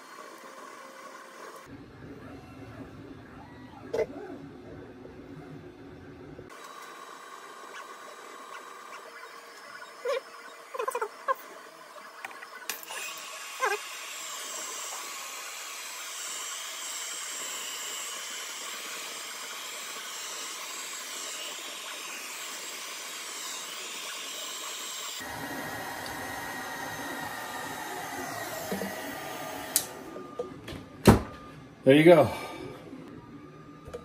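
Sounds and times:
heat gun blowing air: 0:12.8 - 0:30.0.

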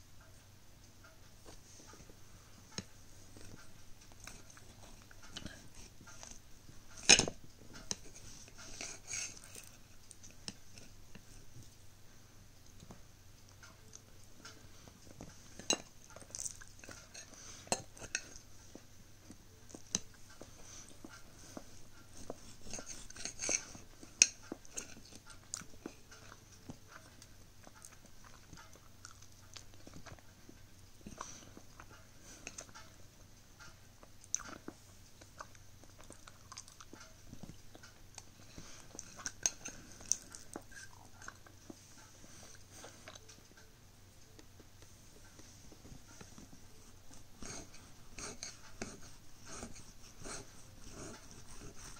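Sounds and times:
person chewing pastry: 0:01.0 - 0:11.6, 0:12.7 - 0:43.7
cutlery scraping ceramic plate: 0:22.2 - 0:24.9.

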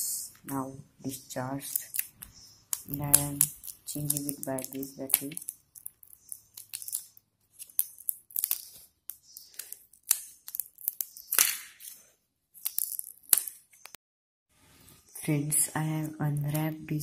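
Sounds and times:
plastic packaging crinkling: 0:01.6 - 0:13.8.

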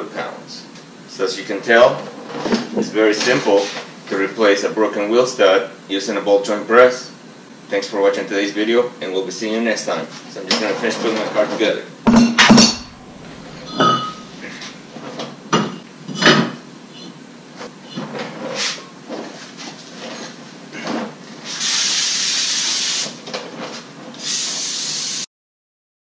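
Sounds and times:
aerosol spray bursts: 0:21.6 - 0:23.1, 0:24.2 - 0:25.3.

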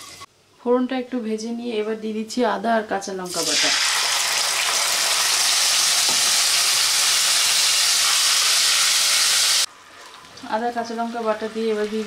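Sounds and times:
paste sizzling in hot oil: 0:03.3 - 0:09.7.

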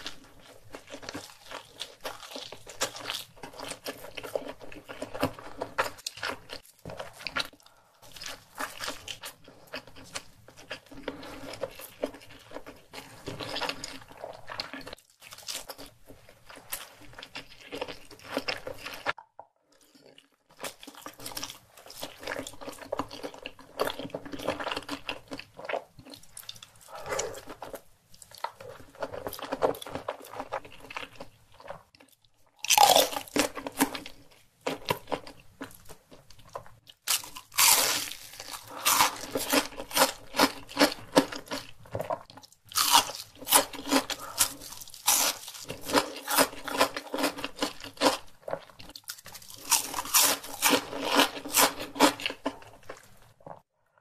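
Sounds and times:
chewing and biting: 0:00.0 - 0:19.1, 0:19.8 - 0:53.6
loud crisp crunching: 0:32.6 - 0:33.6, 0:37.1 - 0:41.0, 0:42.7 - 0:48.2.

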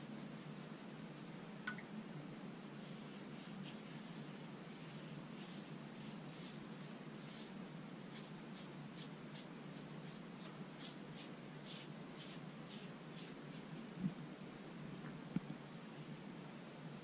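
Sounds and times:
paintbrush strokes on canvas: 0:02.7 - 0:14.2, 0:15.8 - 0:16.3.

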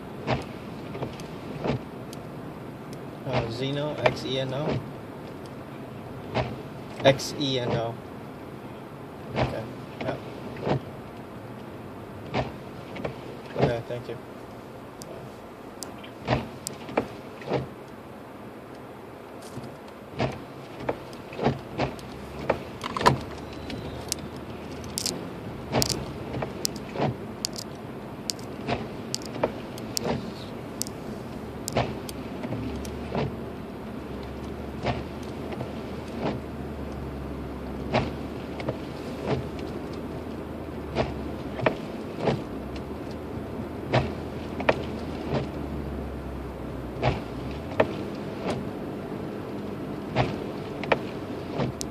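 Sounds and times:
car engine and tyres rumbling: 0:00.0 - 0:51.9
sharp clicks and taps: 0:24.0 - 0:26.8, 0:27.4 - 0:28.5, 0:29.1 - 0:30.2.

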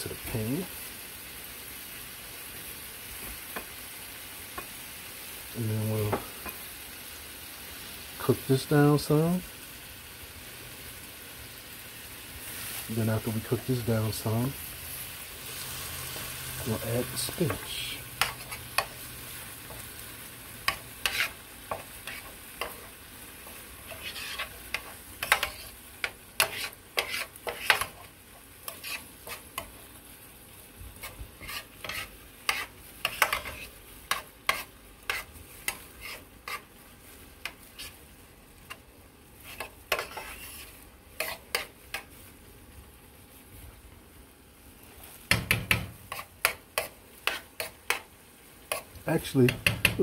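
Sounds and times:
vegetables sizzling in oil: 0:00.0 - 0:50.0
metal spoon scraping a pan: 0:16.1 - 0:29.8, 0:31.0 - 0:36.8, 0:37.4 - 0:38.0, 0:38.6 - 0:42.2, 0:45.0 - 0:50.0.

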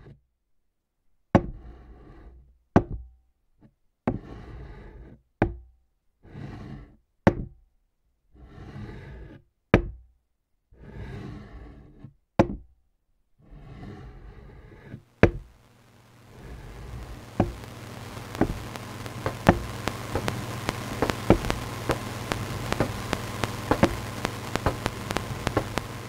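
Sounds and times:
rushes of noisy sound: 0:15.7 - 0:26.0.

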